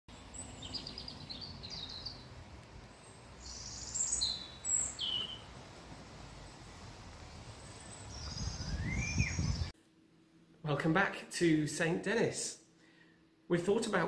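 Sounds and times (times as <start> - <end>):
songbirds chirping and trilling: 0.1 - 9.7
bird whistled notes: 8.2 - 9.7.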